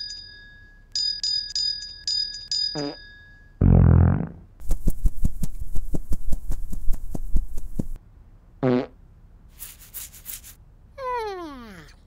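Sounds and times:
buzzy fart-like blurt: 3.6 - 8.0, 8.6 - 9.0
high fluttering rustle: 4.6 - 8.0.

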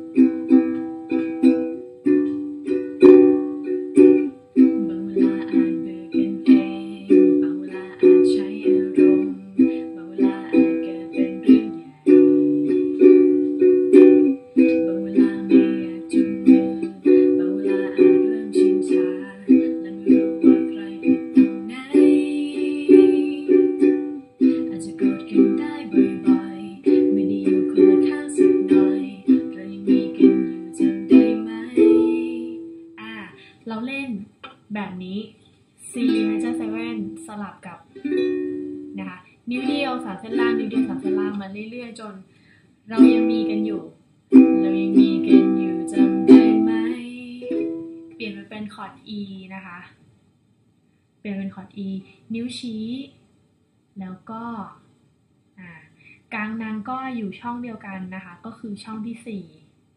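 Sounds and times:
ukulele strumming chords: 0.0 - 33.1, 35.9 - 37.3, 38.0 - 41.5, 42.9 - 48.3.

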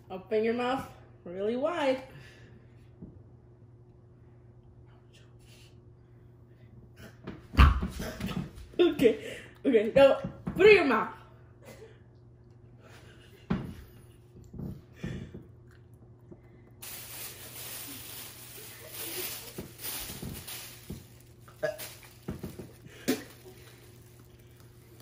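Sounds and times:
plastic bag rustling: 16.8 - 25.0.

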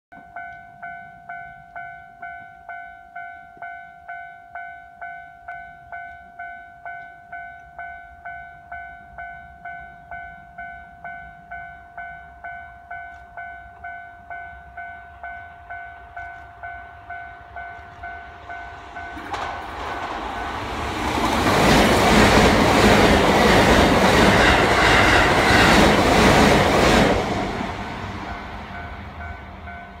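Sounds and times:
train wheels on rails: 12.9 - 14.4, 15.0 - 30.0.

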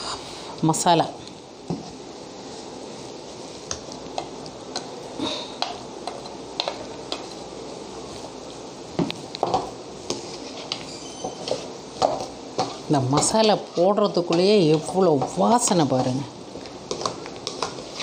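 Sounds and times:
spatula scraping a pan: 10.0 - 16.1, 16.9 - 18.0.

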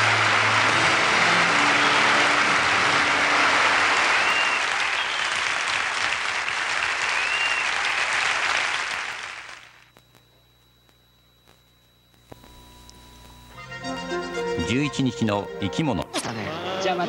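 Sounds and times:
audience applauding loudly: 0.0 - 9.9
short whistles: 4.1 - 5.4, 7.0 - 8.1.

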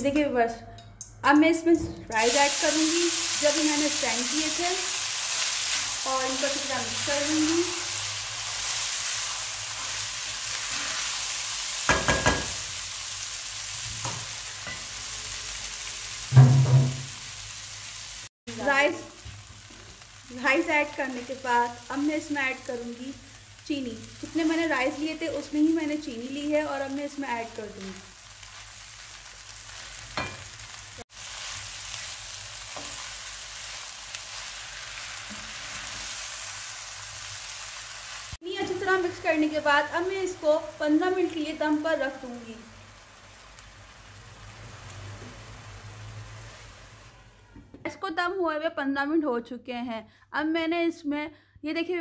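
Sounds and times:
rice sizzling in a pan: 2.1 - 47.6
spatula knocking and scraping pan: 11.9 - 12.6, 16.3 - 17.1.

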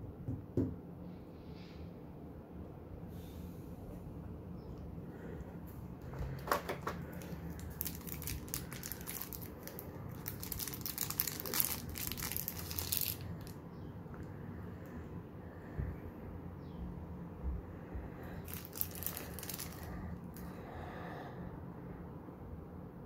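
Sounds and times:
plastic bag crinkling: 6.2 - 13.6, 18.4 - 20.5.

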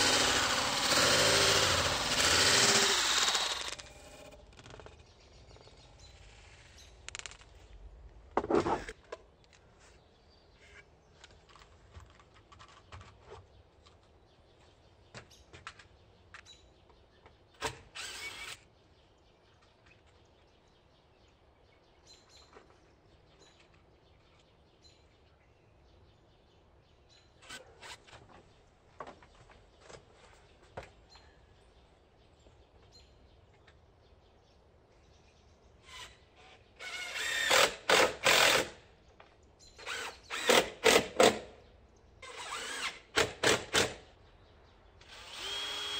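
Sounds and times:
wooden pieces clattering: 7.1 - 7.5.

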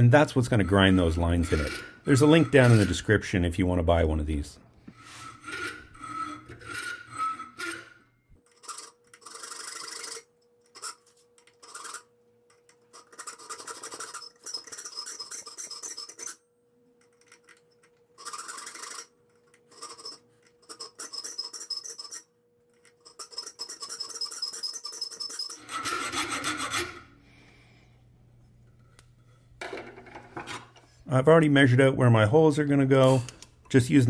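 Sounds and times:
file rasping on steel blade: 0.4 - 3.1, 5.0 - 8.0, 23.1 - 27.1.

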